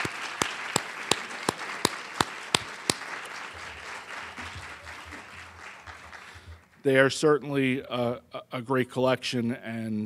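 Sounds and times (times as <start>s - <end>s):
man clapping near microphone: 0.0s - 6.7s
audience applauding: 0.0s - 6.8s.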